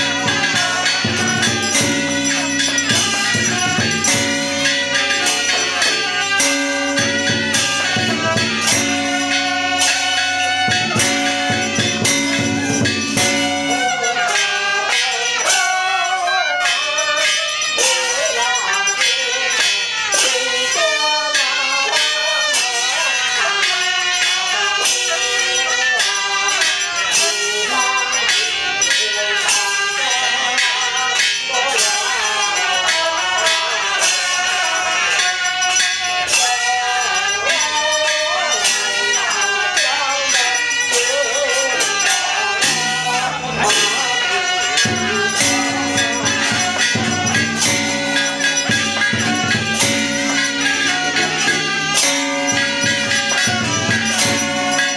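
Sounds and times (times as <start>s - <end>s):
percussion strikes: 0.0s - 54.9s.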